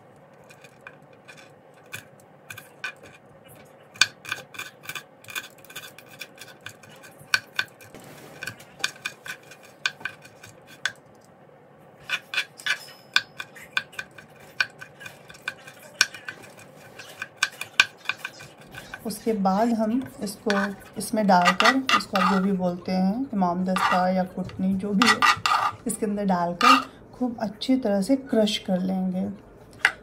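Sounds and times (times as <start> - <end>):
knife chopping on cutting board: 25.0 - 25.8.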